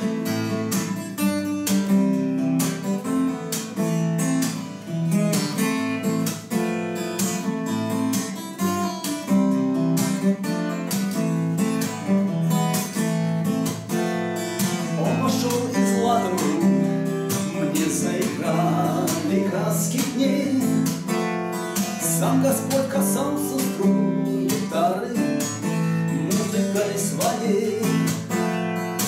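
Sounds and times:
acoustic guitar strumming: 0.0 - 29.0.

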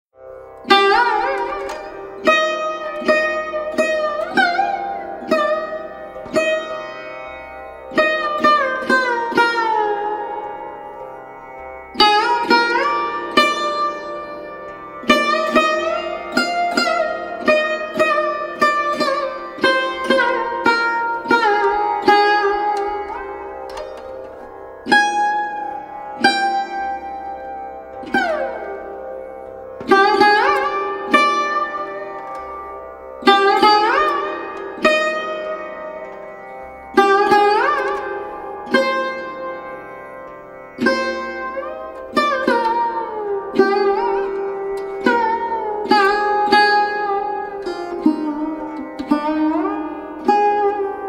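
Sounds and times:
plucked string instrument notes: 0.2 - 51.0.

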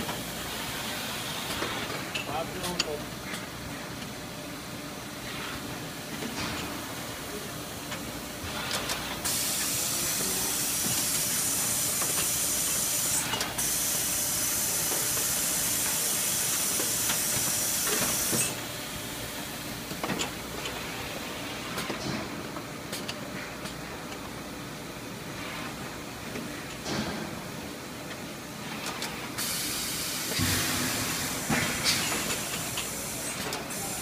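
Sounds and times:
machinery humming: 28.4 - 34.0
loud air hiss: 29.4 - 34.0.

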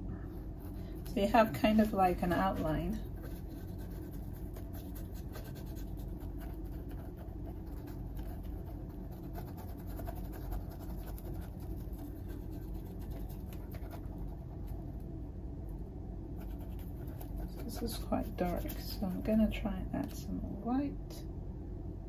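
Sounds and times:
low background hum: 0.0 - 22.0
paintbrush scratching on canvas: 0.6 - 14.8, 16.4 - 19.6.

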